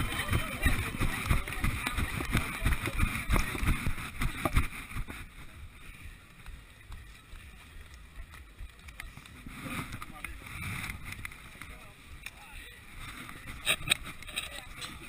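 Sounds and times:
running footsteps thumping: 0.0s - 5.7s
background noise: 0.0s - 15.0s.

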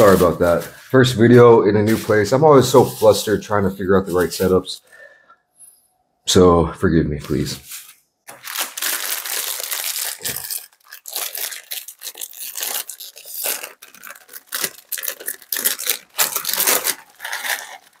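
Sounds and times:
plastic snack bag crinkling: 8.3s - 18.0s.

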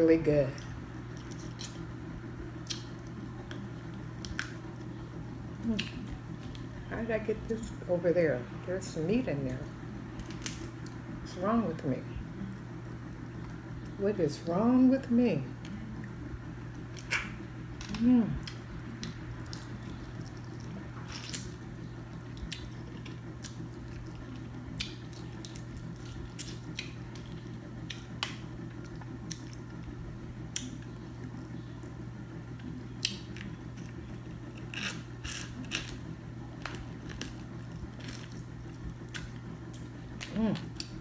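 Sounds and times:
steady low hum: 0.0s - 41.0s
chewing shellfish: 16.8s - 31.9s, 33.0s - 41.0s.

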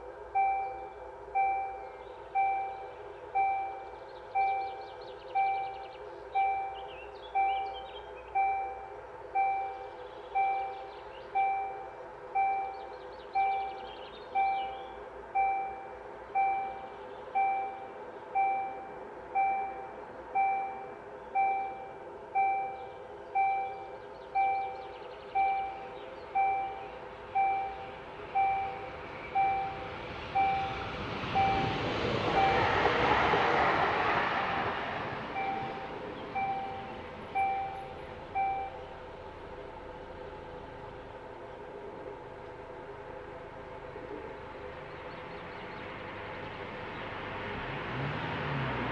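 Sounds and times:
level crossing warning bell: 0.0s - 33.0s, 34.5s - 40.4s
electric train passing: 0.0s - 48.9s.

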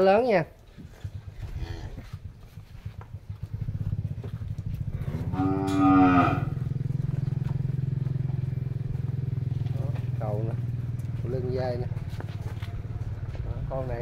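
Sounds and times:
low engine drone: 1.3s - 14.0s
cow mooing: 4.9s - 7.0s.

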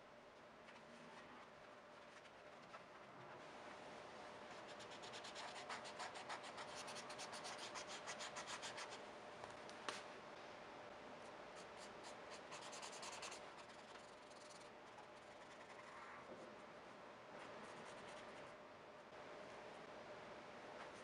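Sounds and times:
pen scratching on paper: 11.8s - 15.9s.

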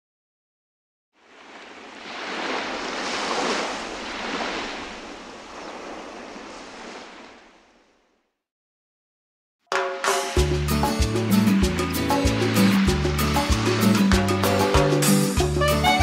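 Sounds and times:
ocean surf rushing: 1.2s - 7.8s, 10.1s - 16.0s.

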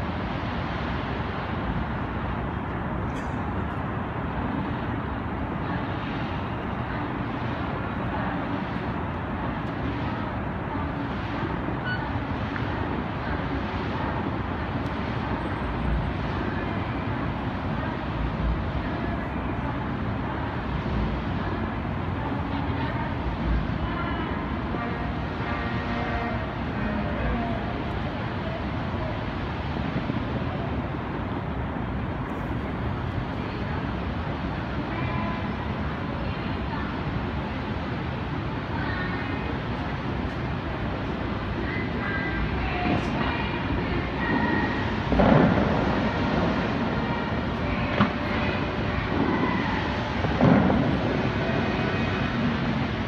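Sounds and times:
steady rumbling background noise: 0.0s - 53.0s
faint murmured voices: 5.4s - 53.0s.

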